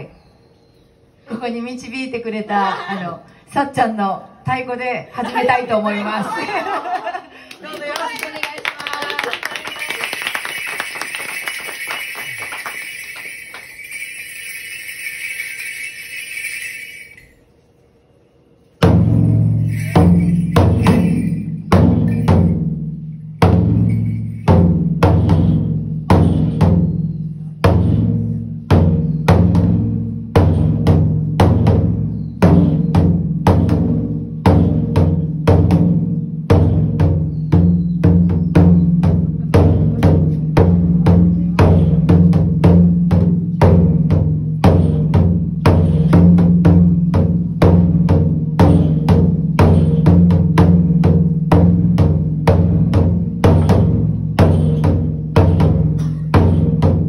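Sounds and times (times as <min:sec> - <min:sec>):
applause: 0:07.4 - 0:14.0
large drum struck with sticks: 0:18.8 - 0:57.0.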